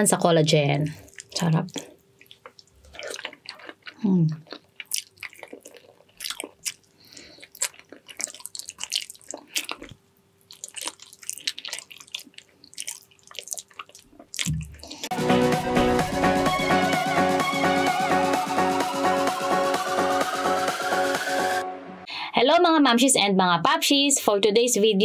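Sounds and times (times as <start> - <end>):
wet chewing: 0.9 - 15.1
electronic dance music: 15.1 - 22.1.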